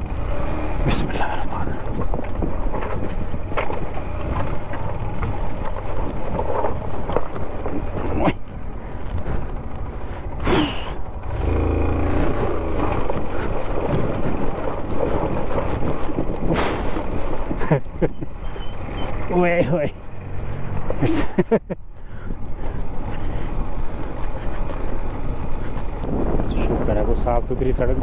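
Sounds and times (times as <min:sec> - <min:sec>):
motorcycle engine in low gear: 0:00.0 - 0:21.1.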